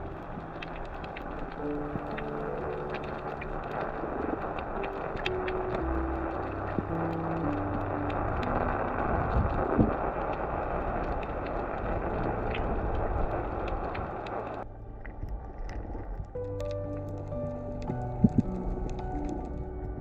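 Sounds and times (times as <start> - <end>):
faint clicks: 0.0 - 19.8
muffled underwater rushing: 0.0 - 20.0
soft background music: 0.0 - 20.0.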